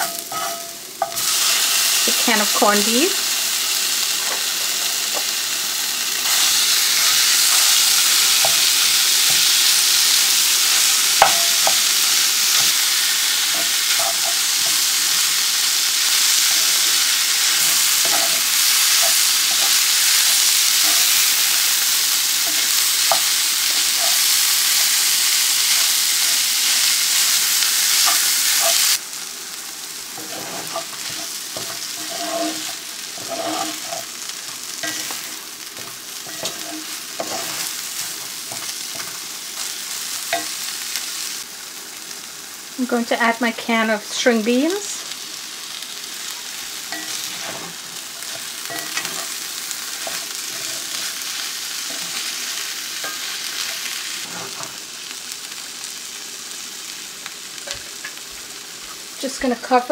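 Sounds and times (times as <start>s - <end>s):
meat sizzling in hot oil: 0.0s - 59.9s
wooden spatula scraping pan: 30.2s - 34.1s, 47.0s - 49.4s.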